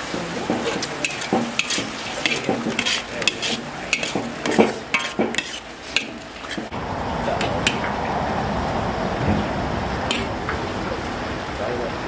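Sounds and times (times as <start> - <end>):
metal ladle scraping a wok: 0.0 - 6.7, 10.1 - 10.3.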